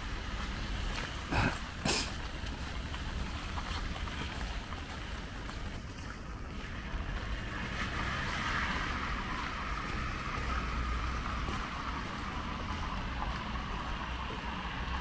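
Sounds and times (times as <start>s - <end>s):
rain hiss: 0.0s - 5.7s
low street rumble: 0.0s - 15.0s.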